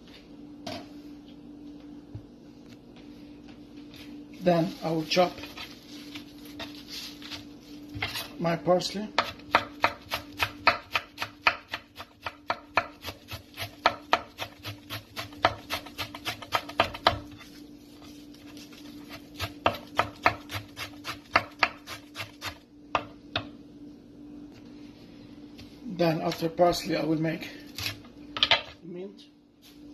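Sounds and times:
knife chopping on wooden board: 9.1 - 17.4, 19.1 - 23.5.

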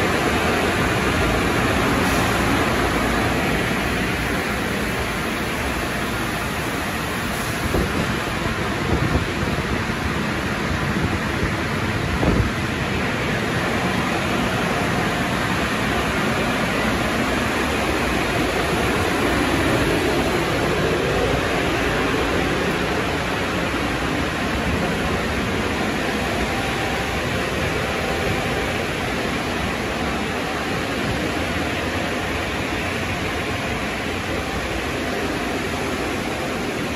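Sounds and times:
car wash equipment rushing: 0.0 - 36.9.

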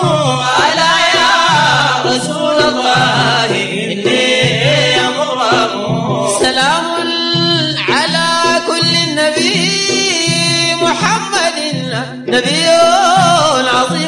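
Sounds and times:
low repeating accompaniment: 0.0 - 13.5
person singing praise song: 0.0 - 14.0.

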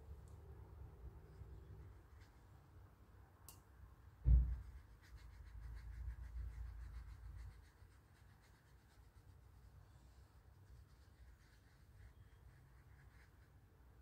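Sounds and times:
paintbrush scrubbing wet paint: 1.3 - 2.7, 4.5 - 13.7
dull thump: 4.2 - 4.6.

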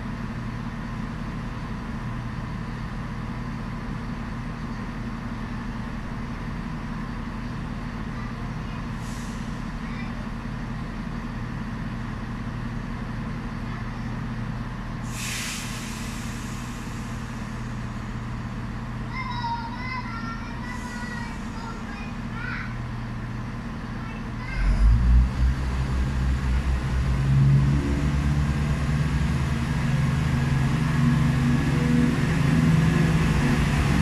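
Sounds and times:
diesel engines idling: 0.0 - 34.0
air brake hiss: 8.9 - 9.8, 15.0 - 18.0.

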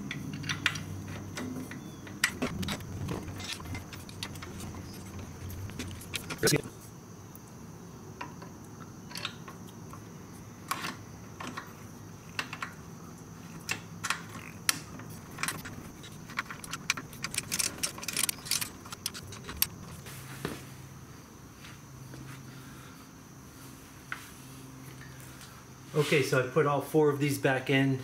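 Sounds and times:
bolts and hand tools clinking: 0.0 - 6.7, 13.6 - 20.0.

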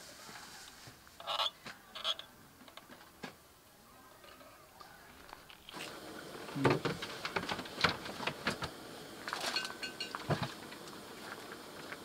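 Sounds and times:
metal lantern clinking: 9.4 - 10.3.

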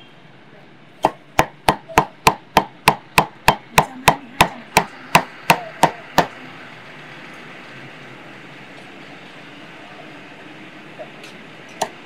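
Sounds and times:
cleaver chopping on wooden block: 1.0 - 6.3.

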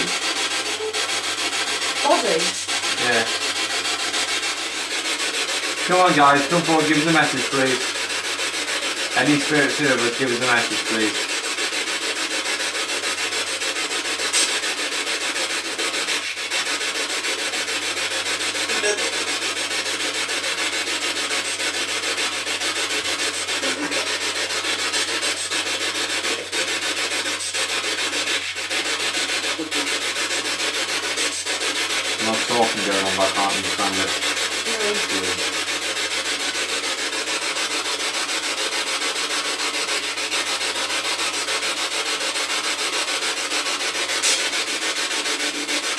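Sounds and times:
radio static hiss: 32.2 - 34.1.

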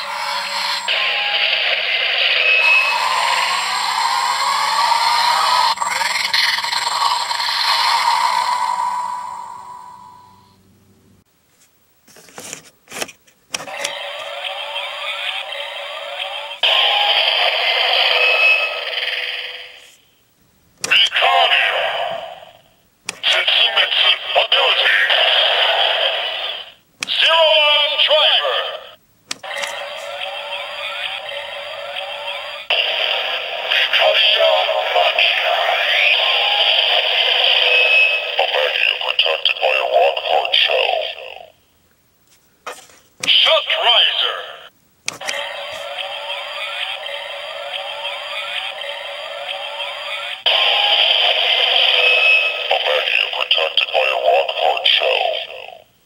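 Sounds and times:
synthesized voice: 0.0 - 3.6, 20.8 - 29.0, 29.9 - 41.6, 43.2 - 44.7, 49.5 - 55.9
toy electronic rising sweep: 0.0 - 10.6, 13.7 - 19.9, 29.5 - 38.8, 45.2 - 52.7
harsh electronic effect: 0.0 - 10.7, 13.7 - 20.0, 20.8 - 41.6, 43.2 - 55.7.

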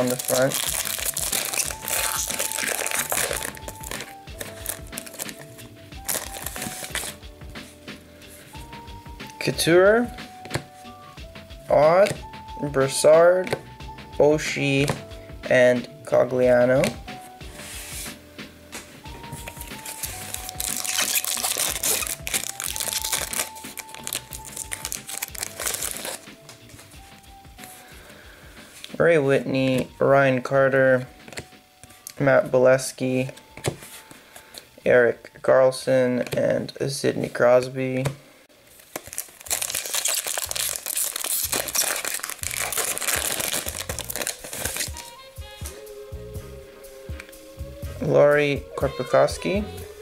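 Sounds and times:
foil wrapper crinkling: 0.0 - 5.4, 6.0 - 7.2, 19.8 - 26.2, 38.8 - 45.2
background music with held notes: 0.0 - 50.0.

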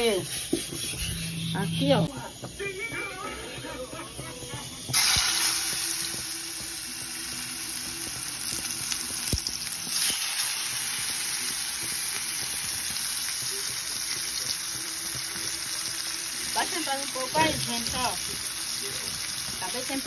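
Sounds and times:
meat sizzling in hot oil: 4.6 - 20.0.

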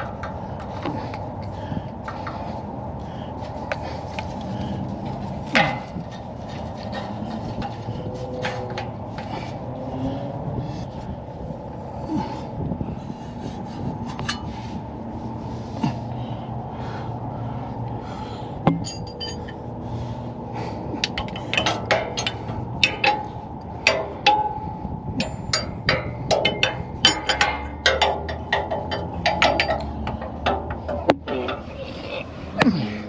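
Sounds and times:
low hum: 0.0 - 33.0
tools clinking on metal frame: 14.1 - 14.5, 18.7 - 19.7, 21.0 - 32.0.

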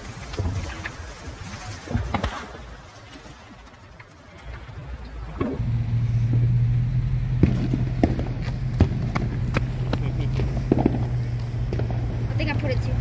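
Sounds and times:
firework pops: 1.8 - 2.8, 7.3 - 12.2
steady low hum: 4.4 - 13.0.

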